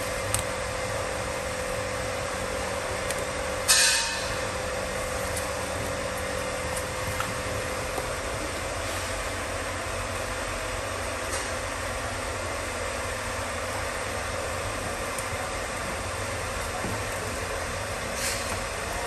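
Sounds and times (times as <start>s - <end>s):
faint hum: 0.0s - 19.0s.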